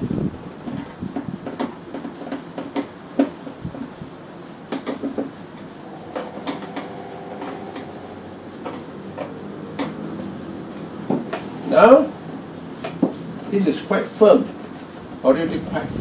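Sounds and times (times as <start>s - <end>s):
faint steady hum: 5.6s - 10.1s.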